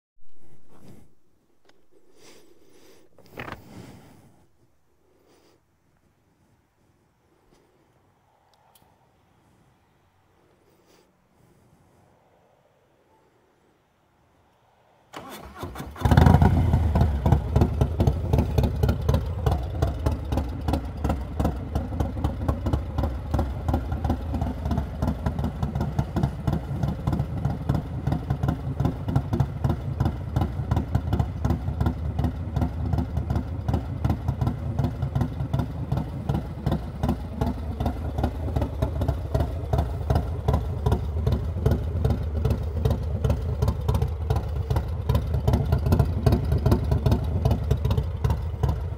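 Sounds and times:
motorcycle starter motor: 15.1 - 19.6
motorcycle engine revving and idling: 15.2 - 48.9.

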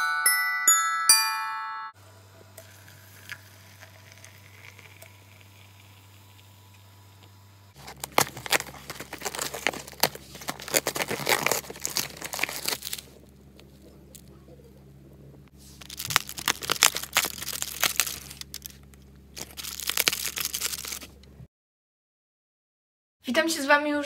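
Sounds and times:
cardboard tearing and rustling: 7.8 - 13.2, 15.6 - 21.2.

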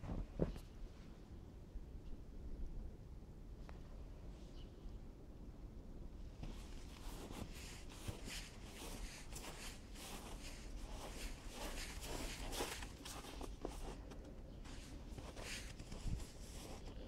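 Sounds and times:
footsteps crunching in snow: 6.4 - 17.0.

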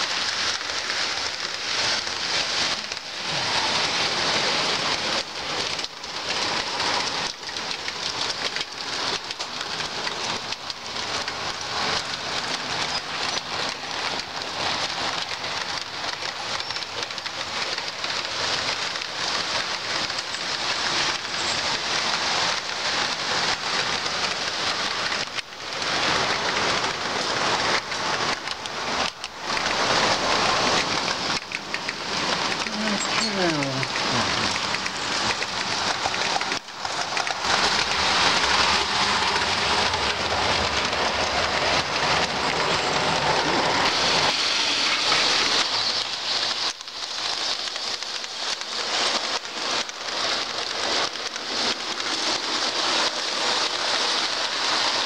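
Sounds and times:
model train wheels clattering: 0.0 - 55.0.

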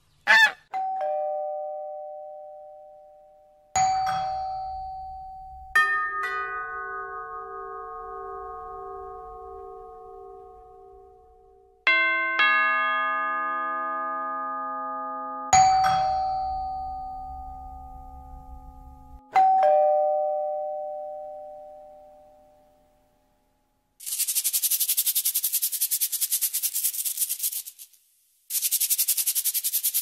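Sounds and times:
doorbell chimes: 0.8 - 10.8, 11.9 - 22.9
shaker rattling rapidly: 24.0 - 30.0.

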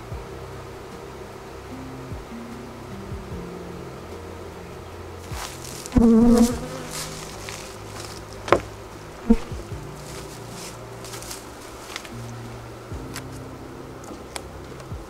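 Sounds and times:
honeybees buzzing: 0.0 - 15.0
wooden hive parts knocking: 5.2 - 12.2.

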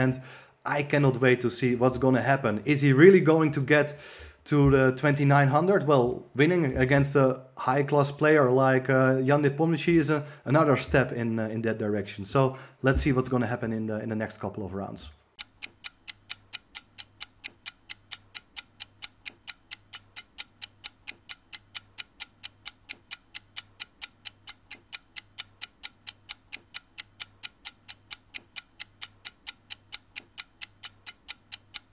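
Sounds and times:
clock-like ticking: 15.3 - 31.9.

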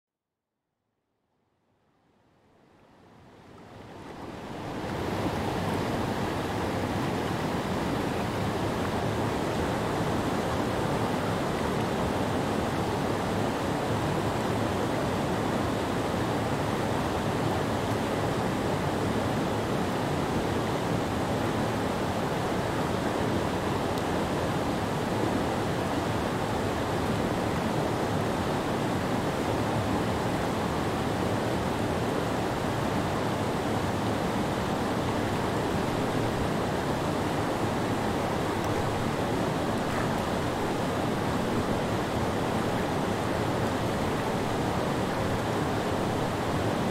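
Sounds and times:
water rushing over rocks: 4.0 - 46.9.

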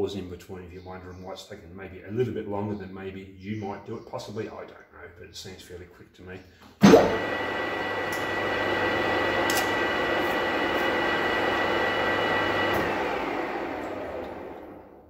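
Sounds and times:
lathe motor hum and gear whine: 7.1 - 15.0.

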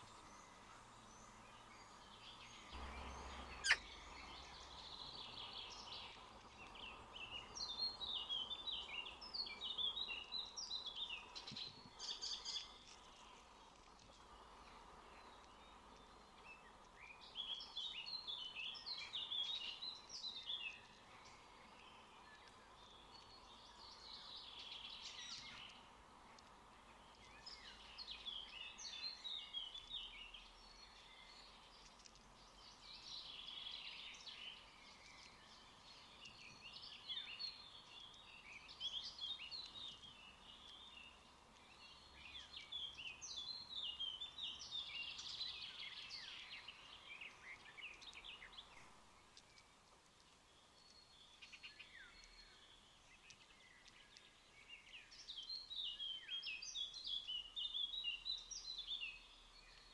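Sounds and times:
faint hum: 0.0 - 7.6
birds chirping and singing: 0.0 - 13.4.

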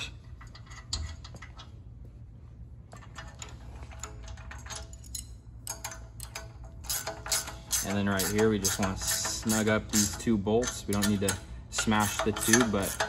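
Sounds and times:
metal tools clinking: 3.2 - 13.0.

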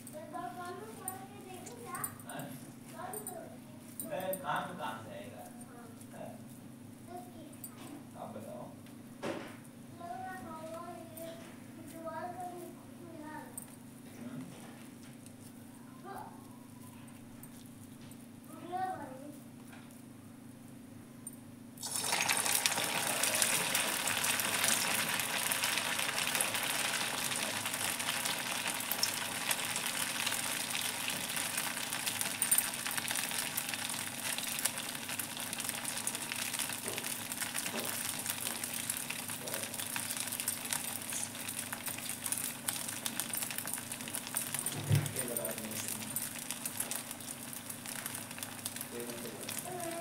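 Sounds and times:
hot oil sizzling and popping: 21.8 - 50.0.

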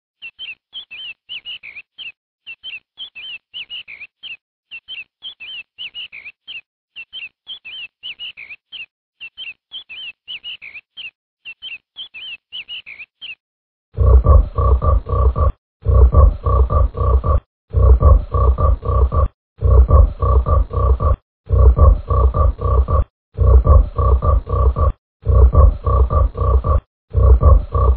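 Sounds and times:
high downward-sliding chirps: 14.0 - 27.9.

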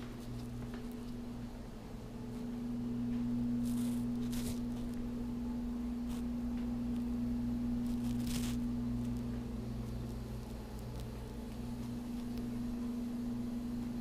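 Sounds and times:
soft rustles: 0.0 - 1.2, 2.3 - 5.1, 7.7 - 12.5
low electrical hum: 0.0 - 14.0.

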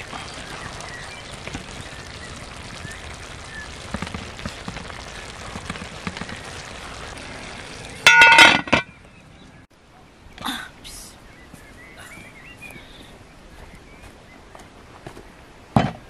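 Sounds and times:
food simmering: 0.0 - 8.3
metal clinking: 8.1 - 8.9.

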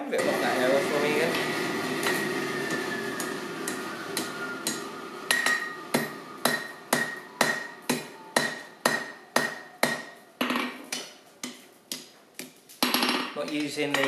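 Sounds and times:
hammer striking steel on anvil: 3.7 - 10.1.

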